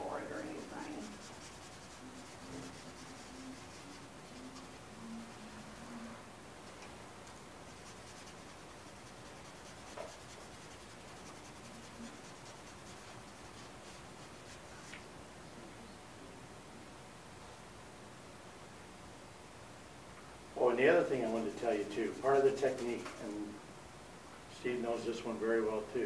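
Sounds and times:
pencil scratching on paper: 0.2 - 6.0, 7.3 - 14.9, 21.0 - 23.4.

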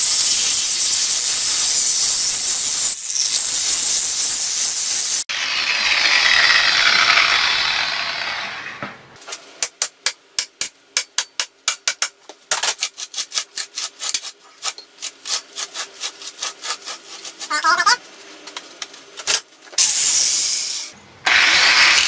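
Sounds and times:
angle grinder cutting metal: 1.0 - 8.8, 21.3 - 22.0.

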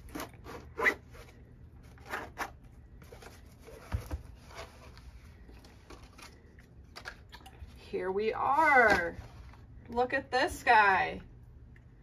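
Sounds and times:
zipper rasping: 0.1 - 1.3.

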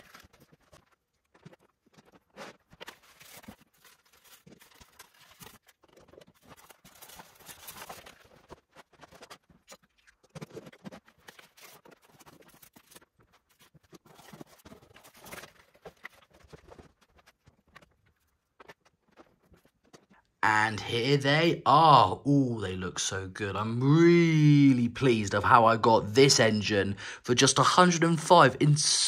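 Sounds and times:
cardboard and plastic packaging rustling: 0.0 - 20.3.

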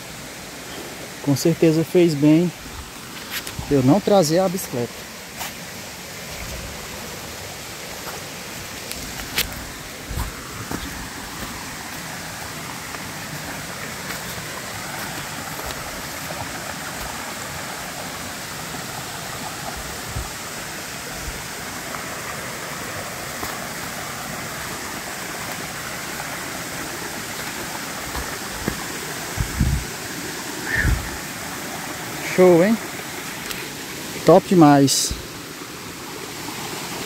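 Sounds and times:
creek rushing over rocks: 0.0 - 37.0.

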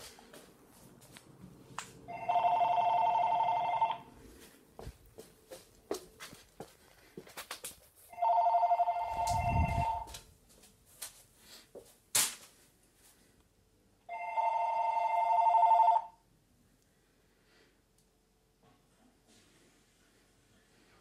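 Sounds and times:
cordless phone ringing: 2.1 - 4.1, 8.1 - 10.1, 14.1 - 16.2.

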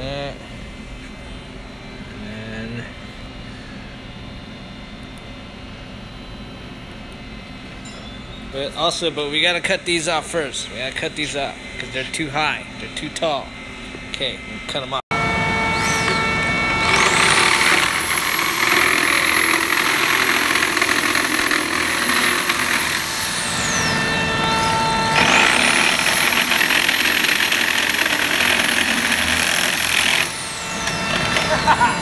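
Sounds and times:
reciprocating saw cutting plastic: 16.8 - 23.8, 25.1 - 32.0.

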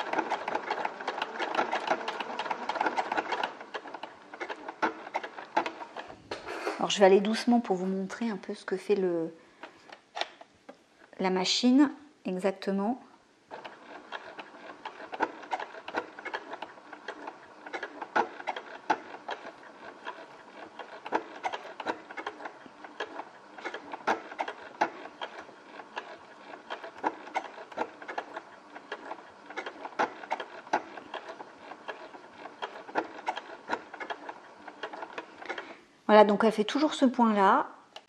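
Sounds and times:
sewing machine clicking: 0.0 - 7.6, 13.5 - 35.9.

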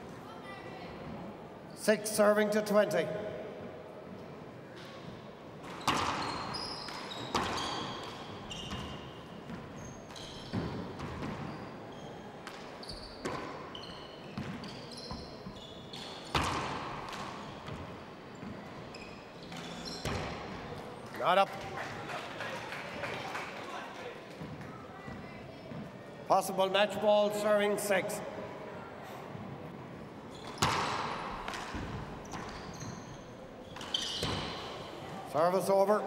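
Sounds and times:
shoes squeaking on wooden floor: 5.7 - 16.6, 17.2 - 20.6, 30.2 - 35.3.

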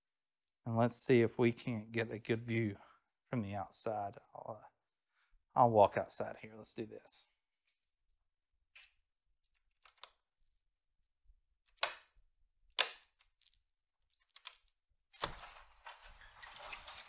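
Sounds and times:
sliding glass door opening: 15.3 - 17.0.

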